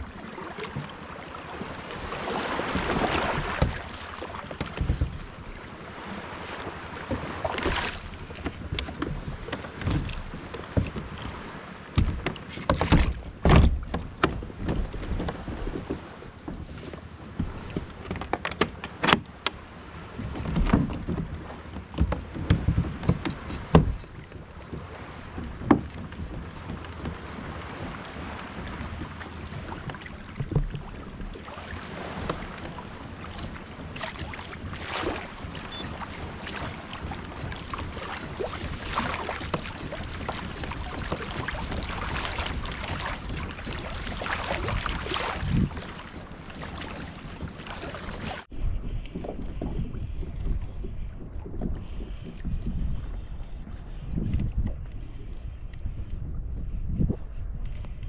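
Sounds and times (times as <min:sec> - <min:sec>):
water sloshing around kayak: 0:00.0 - 0:58.0
knocks against hull: 0:01.6 - 0:05.8, 0:06.5 - 0:48.5.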